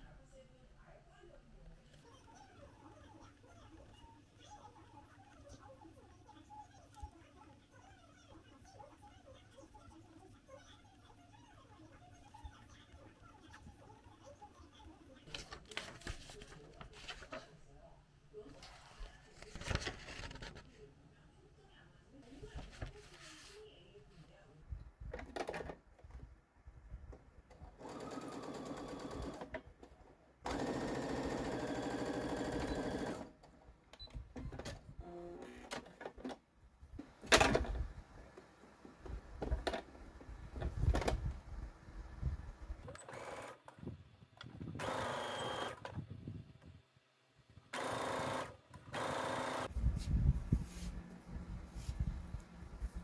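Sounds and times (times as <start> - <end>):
sewing machine stitching: 27.8 - 29.6, 30.5 - 33.3, 44.7 - 45.8, 47.7 - 49.7
fabric handling noise: 49.7 - 53.0.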